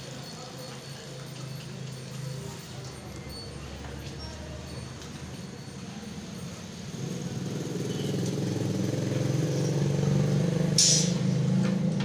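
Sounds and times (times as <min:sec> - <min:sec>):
short hiss: 0:10.8 - 0:11.2.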